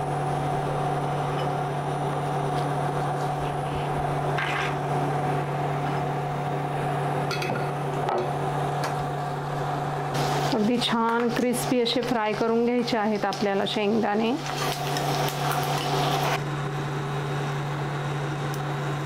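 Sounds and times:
steady appliance hum: 0:00.0 - 0:19.0
peanuts sizzling in oil: 0:14.4 - 0:16.4.

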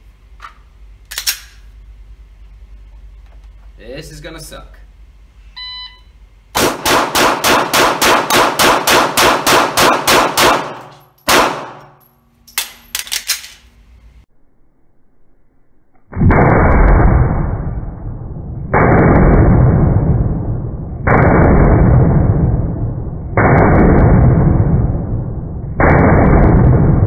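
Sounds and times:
shot timer beep: 0:05.6 - 0:06.2
pistol shots: 0:06.6 - 0:12.0.

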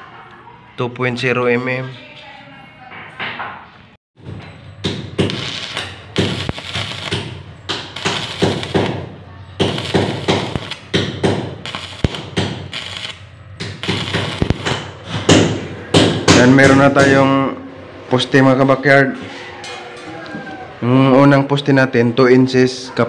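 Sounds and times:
welding arc crackling and sizzling: 0:05.2 - 0:15.0.

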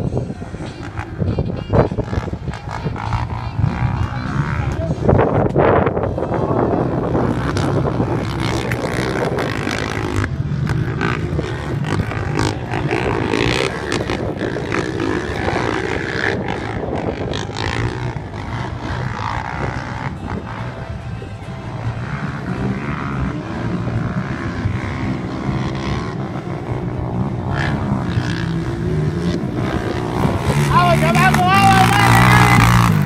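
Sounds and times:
quad engines droning: 0:00.0 - 0:33.0.

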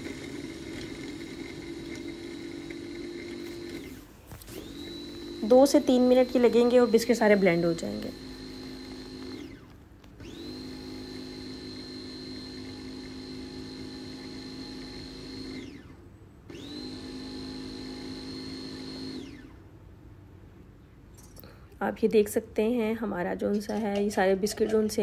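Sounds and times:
chopper motor whirring: 0:00.0 - 0:15.9.

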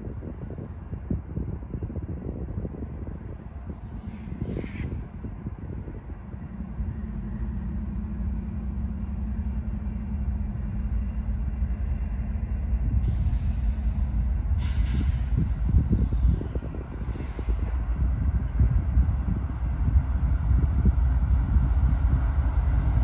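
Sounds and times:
locomotive engine drone: 0:00.0 - 0:23.0
short hisses: 0:14.6 - 0:15.4.

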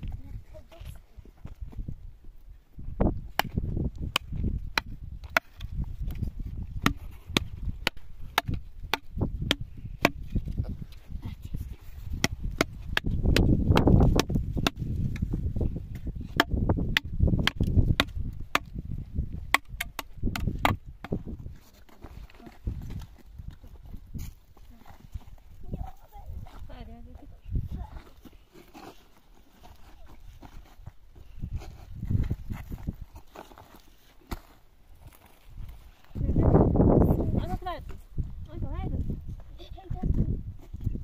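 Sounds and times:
sharp chopping knocks: 0:06.8 - 0:10.2, 0:12.2 - 0:14.8, 0:16.4 - 0:18.7.

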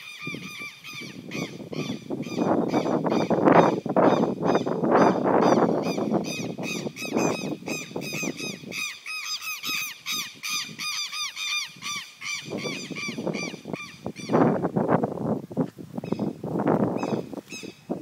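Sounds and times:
lapwings shrill alarm calls: 0:00.0 - 0:14.4.

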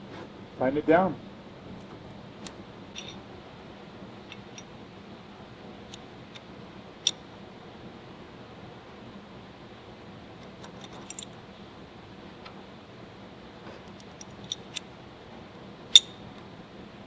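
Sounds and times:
faint background hum: 0:00.0 - 0:17.0
metal clinks of bolt and nut: 0:02.9 - 0:03.2, 0:04.2 - 0:04.7, 0:10.6 - 0:11.4, 0:13.9 - 0:14.9, 0:15.9 - 0:16.2.

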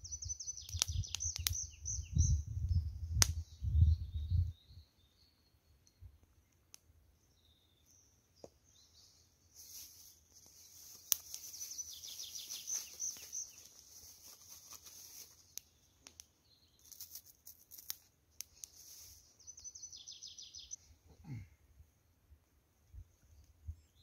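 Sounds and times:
songbirds singing: 0:00.0 - 0:21.1, 0:23.0 - 0:24.0.

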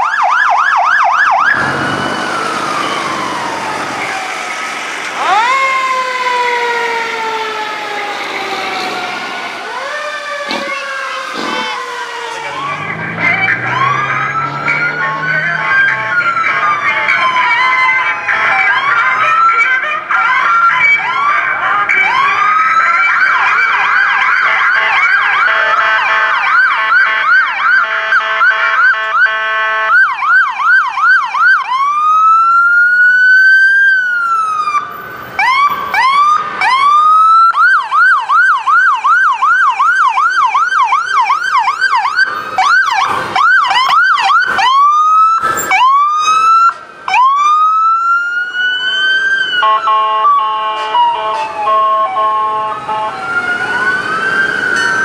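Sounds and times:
emergency sirens wailing and yelping: 0:00.0 - 0:55.0
multi-tone horn blasts: 0:24.8 - 0:30.0, 0:49.6 - 0:53.2.

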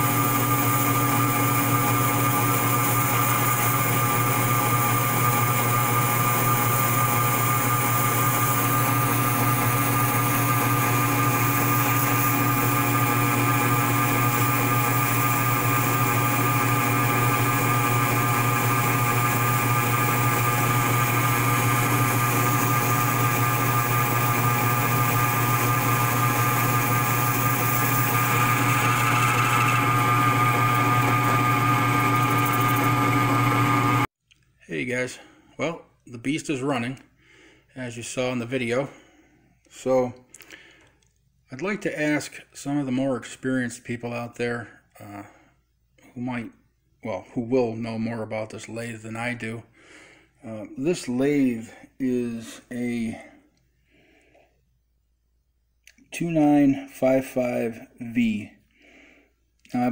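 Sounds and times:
metal lathe running: 0:00.0 - 0:34.1.

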